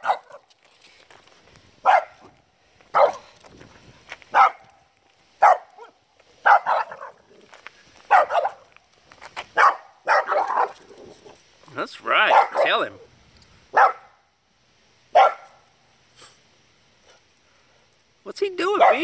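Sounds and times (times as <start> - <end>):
dog barking: 0.0 - 0.4, 1.8 - 2.3, 2.9 - 3.3, 4.3 - 4.7, 5.4 - 7.2, 8.1 - 8.6, 9.6 - 10.8, 12.2 - 12.9, 13.7 - 14.2, 15.1 - 15.6, 18.8 - 19.0.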